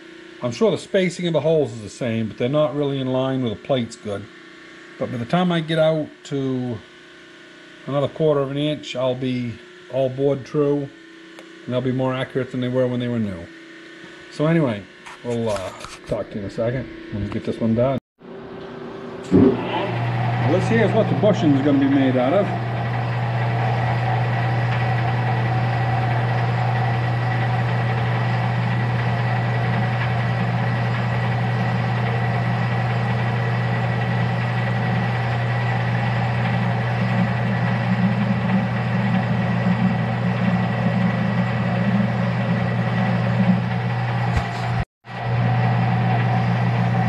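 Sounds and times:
metal lathe running: 19.2s - 47.0s.

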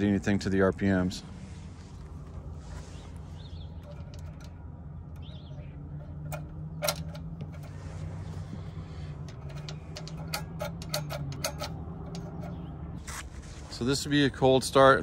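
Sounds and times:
low steady hum: 0.0s - 15.0s
faint bird chirp: 1.8s - 6.9s
light metallic clicks: 3.1s - 12.8s.

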